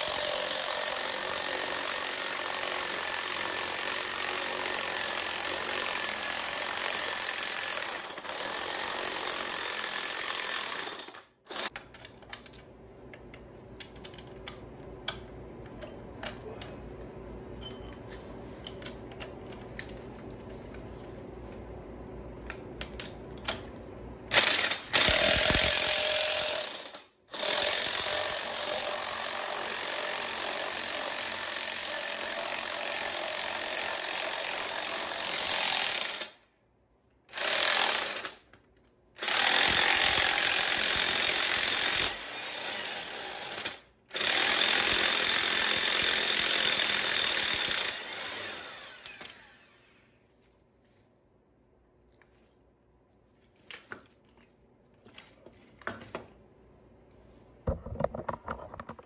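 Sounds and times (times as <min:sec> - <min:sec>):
clicks of tools being handled: 0:11.7 - 0:16.4.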